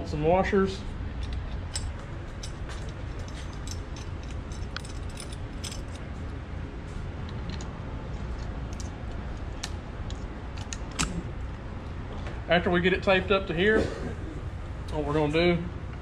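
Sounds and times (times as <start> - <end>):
low background hum: 0.0 - 16.0
hardware clicking and rattling: 1.1 - 6.2.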